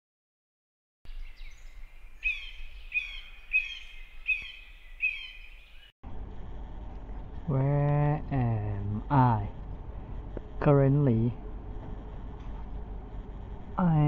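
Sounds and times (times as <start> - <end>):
bird chirping: 1.1 - 6.0
low background hum and hiss: 6.1 - 14.0.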